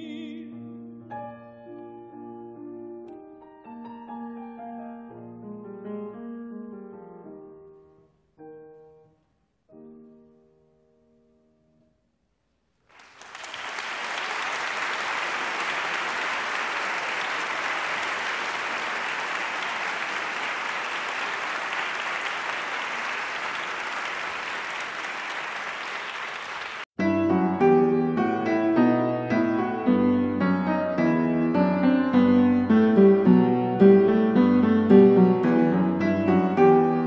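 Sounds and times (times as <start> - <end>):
solo piano music: 0.0 - 11.7, 27.0 - 37.0
audience applauding: 12.9 - 27.0.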